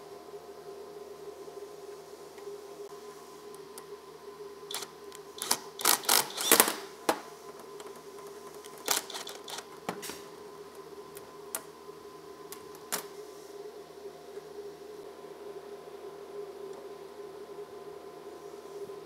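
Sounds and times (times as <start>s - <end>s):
power driver bursts: 4.7s - 6.9s, 8.8s - 9.7s.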